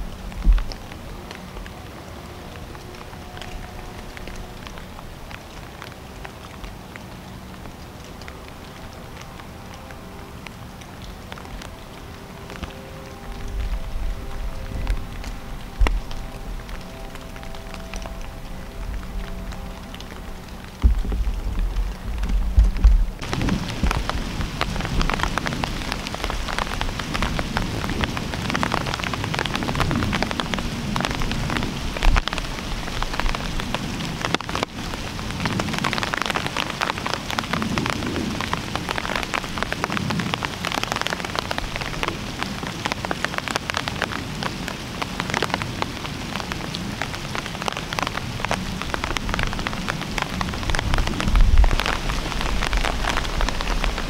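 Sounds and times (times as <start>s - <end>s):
rain pattering on dry leaves: 0.0s - 54.0s
low bump: 20.0s - 24.6s.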